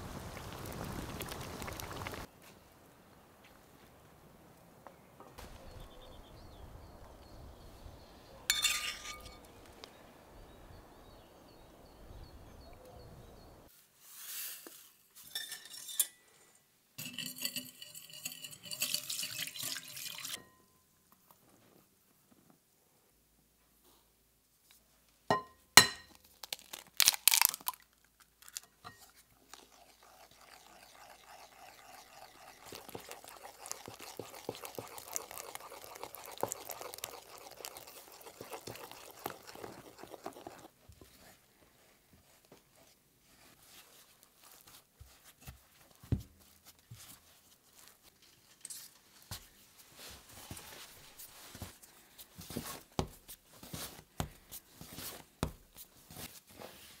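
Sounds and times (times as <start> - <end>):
spoon stirring dough in glass bowl: 8.5 - 9.4, 17.0 - 20.5, 28.8 - 41.4
hands kneading dough on board: 38.2 - 47.9, 49.3 - 57.0.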